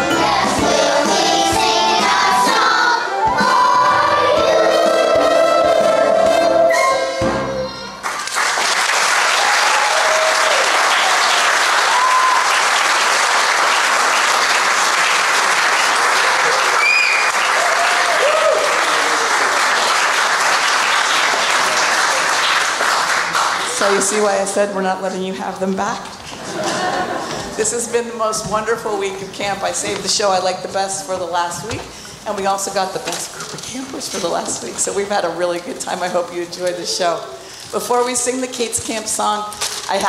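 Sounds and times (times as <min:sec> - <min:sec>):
backing track music: 0:00.0 - 0:08.0
children's chorus singing: 0:00.0 - 0:08.0
audience cheering: 0:08.0 - 0:22.6
audience applauding: 0:08.0 - 0:24.1.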